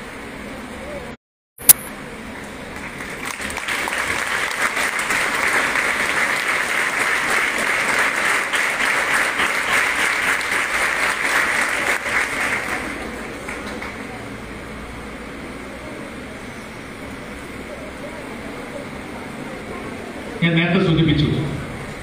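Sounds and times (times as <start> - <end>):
audience applauding: 2.4 - 14.6.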